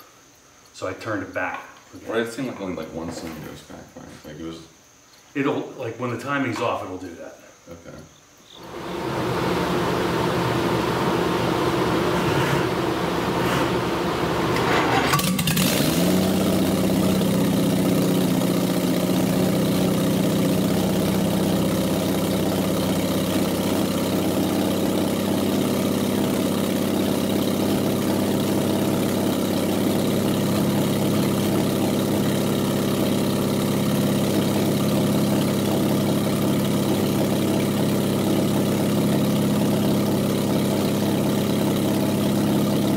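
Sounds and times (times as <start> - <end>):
engine sharp crack: 8.6 - 33.4
engine starting and idling: 8.6 - 42.9.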